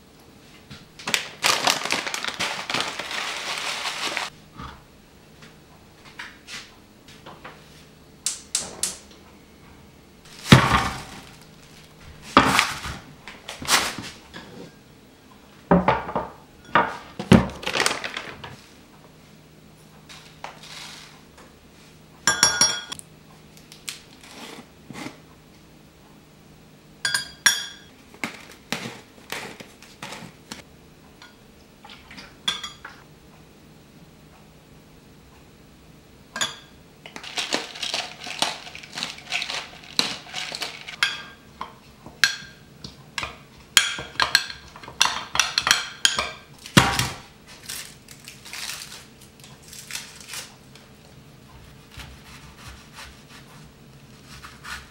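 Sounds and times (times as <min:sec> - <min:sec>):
dishes and utensils clattering: 0:22.3 - 0:23.0
metal spoon clinking against glass: 0:22.3 - 0:23.0.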